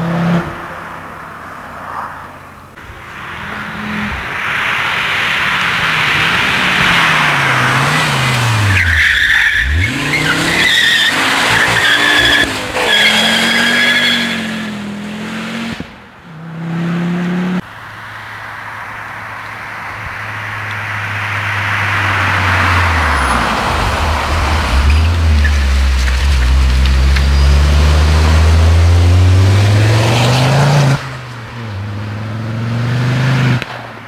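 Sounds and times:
car engine revving: 2.9 - 17.7, 19.9 - 33.8
tyres squealing: 6.5 - 14.8, 22.5 - 29.0.

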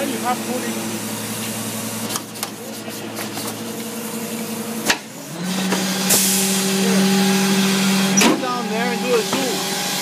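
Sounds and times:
engine revving up: 5.2 - 10.0.

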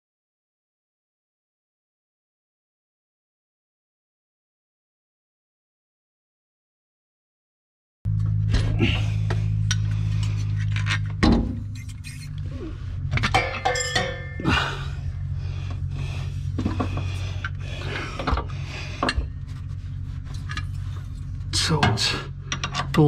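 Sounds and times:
steady low hum: 8.1 - 23.0
metal clinks and knocks: 13.1 - 14.8, 21.9 - 23.0.

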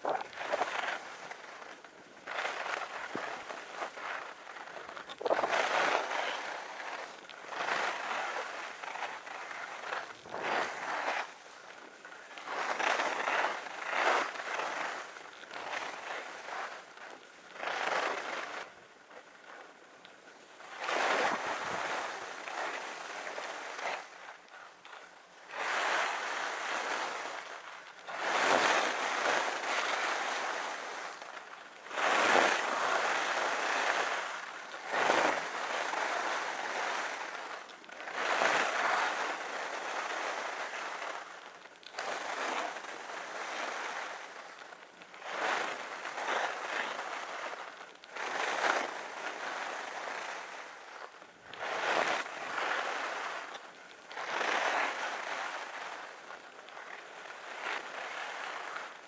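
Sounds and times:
skis scraping over snow: 0.0 - 59.0.

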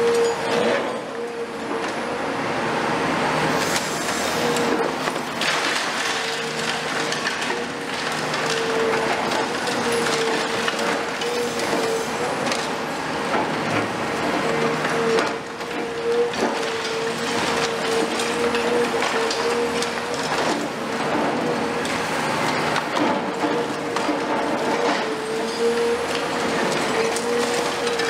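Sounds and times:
excavator engine and hydraulic drone: 0.0 - 28.0
concrete cracking and crumbling: 4.6 - 12.9, 14.9 - 28.0.

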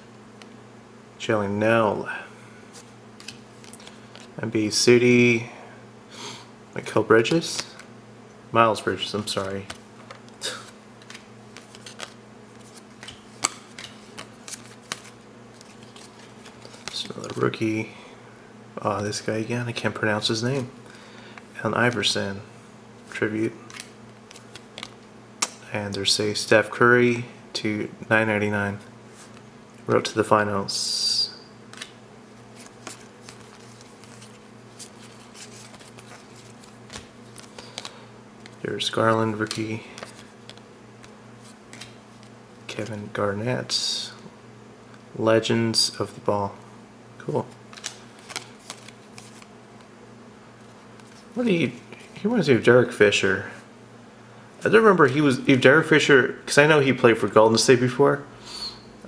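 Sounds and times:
faint steady hum: 0.0 - 59.0
cards flipped by hand: 2.7 - 4.4, 9.2 - 17.5, 23.6 - 25.6, 31.7 - 38.6, 39.3 - 42.4, 47.7 - 49.9.

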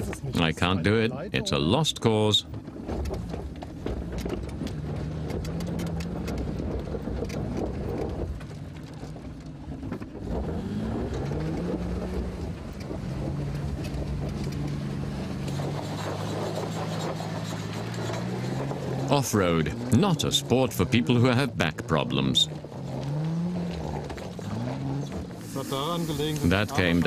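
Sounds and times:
car engine running: 0.0 - 27.0
clatter of knocks and clicks: 2.4 - 19.1.

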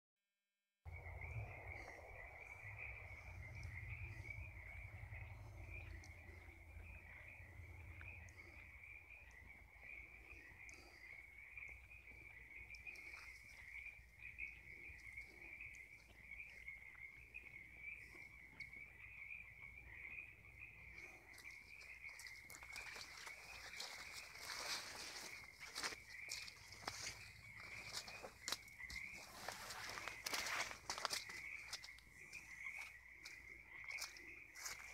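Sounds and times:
frogs calling: 0.9 - 34.9
footsteps: 22.2 - 34.9.

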